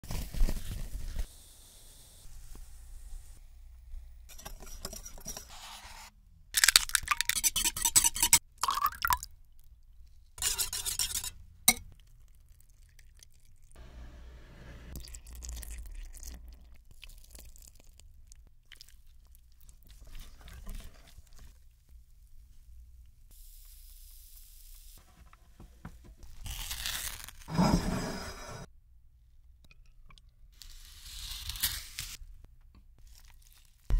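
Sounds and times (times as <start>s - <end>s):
whisk beating batter in a bowl: 4.4s - 5.5s
batter pouring and dripping: 8.5s - 9.3s, 15.0s - 21.9s.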